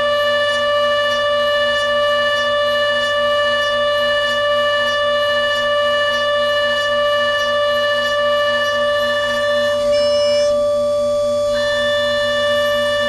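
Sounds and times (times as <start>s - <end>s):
milling machine spindle whine: 0.0s - 13.0s.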